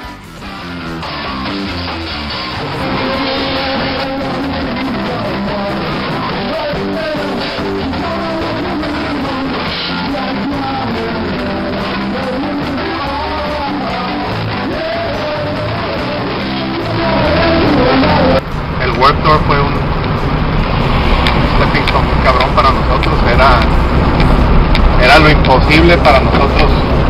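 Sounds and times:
ska punk band playing: 0.1 - 18.4.

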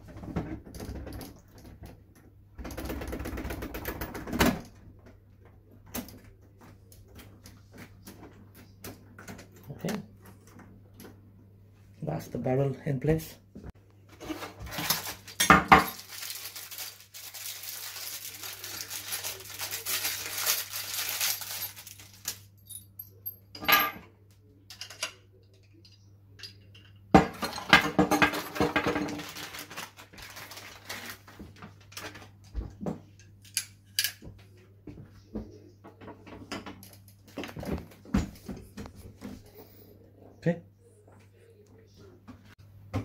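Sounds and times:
plastic wrapping rustling: 14.2 - 22.6, 28.2 - 32.4
metal parts clinking on table: 20.6 - 24.0.

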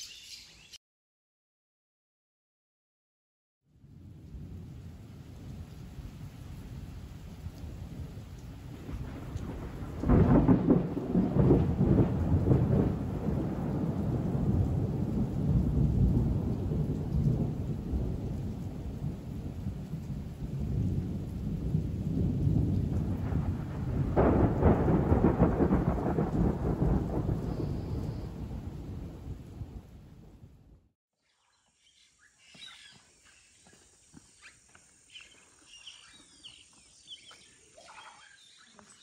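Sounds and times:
rolling thunder: 3.8 - 30.9
steady rain: 3.8 - 30.9.

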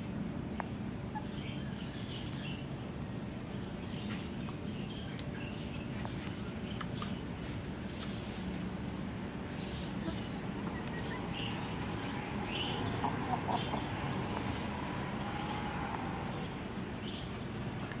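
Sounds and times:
hens clucking: 9.6 - 18.0.

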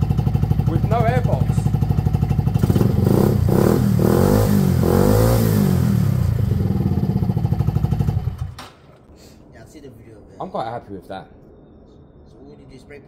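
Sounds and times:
scooter engine revving and idling: 0.0 - 8.6.

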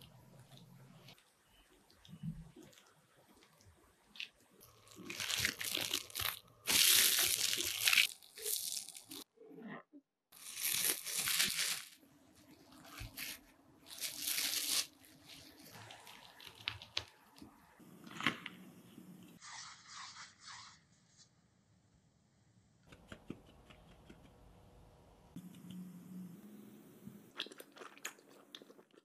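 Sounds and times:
cling film crinkling: 12.8 - 17.4.

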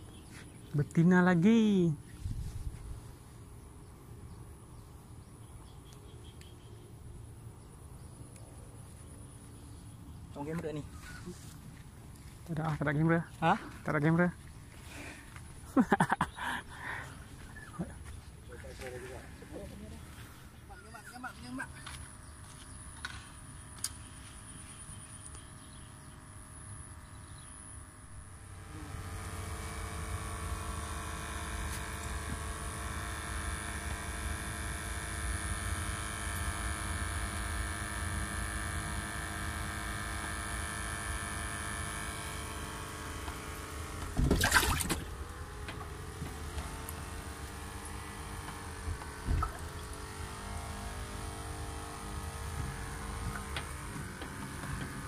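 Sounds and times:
air pump humming: 21.4 - 55.0.

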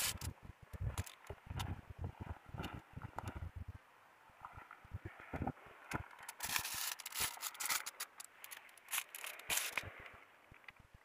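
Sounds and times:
dry leaves and grass rustling: 6.2 - 10.0.

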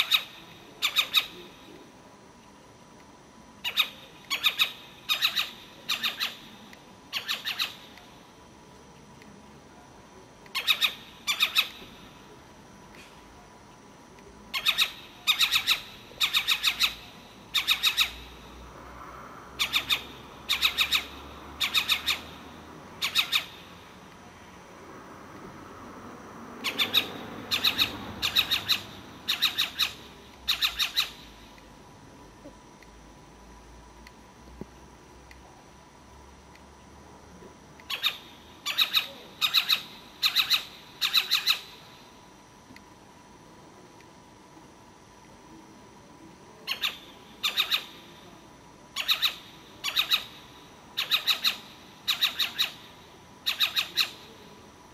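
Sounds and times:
owl squawking calls: 0.0 - 1.5, 3.6 - 8.0, 10.5 - 12.0, 14.5 - 18.3, 19.6 - 22.4, 23.0 - 23.7, 26.6 - 31.3, 37.9 - 41.8, 46.7 - 48.1, 49.0 - 54.4.

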